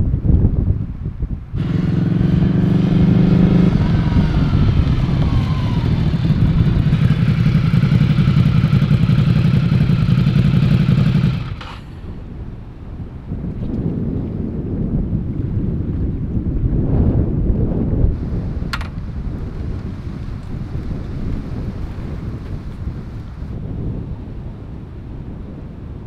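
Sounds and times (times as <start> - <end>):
motorcycle engine running: 1.6 - 12.6, 18.2 - 23.6.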